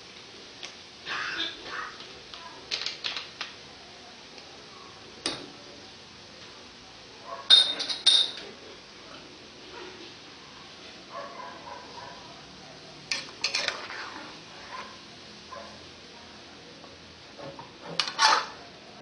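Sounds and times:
glass bottle and cookware clinking: 0:07.5 - 0:08.4.

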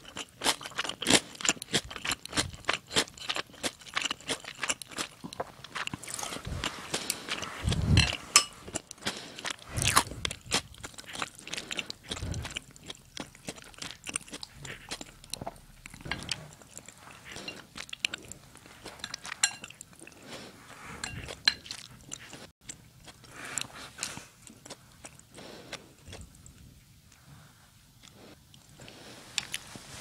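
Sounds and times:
chewing: 0:00.0 - 0:29.7
spoon and chopsticks clinking in bowl: 0:08.0 - 0:08.6, 0:19.0 - 0:19.8.

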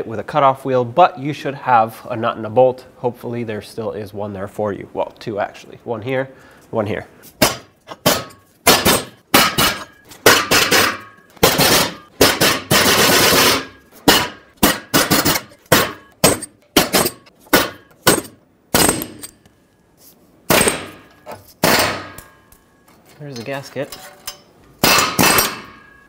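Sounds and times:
air chisel hammering: 0:07.4 - 0:19.3.

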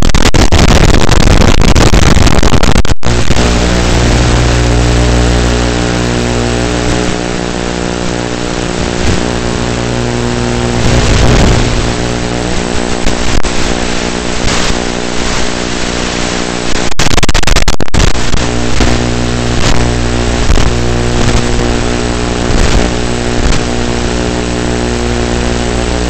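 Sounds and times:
electric motor and propeller droning: 0:03.1 - 0:15.4.

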